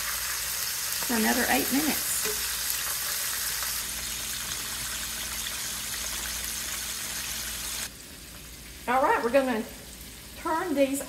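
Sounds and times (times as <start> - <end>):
chicken deep-frying in oil: 0.0 - 11.0.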